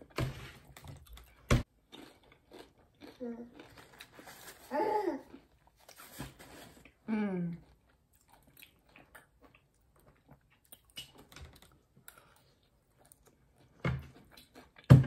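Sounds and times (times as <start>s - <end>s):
chewing: 0.7s - 4.6s, 6.8s - 14.9s.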